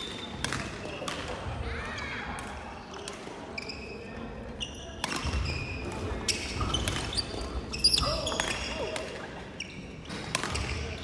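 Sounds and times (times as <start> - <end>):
rackets hitting shuttlecocks: 0.0 - 1.5, 10.1 - 11.0.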